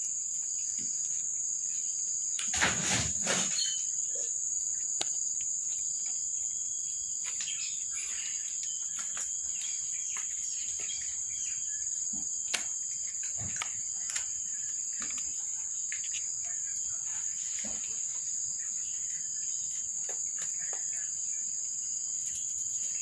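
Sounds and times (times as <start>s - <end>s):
rustle: 0.0s - 4.0s
high insect drone: 0.0s - 23.0s.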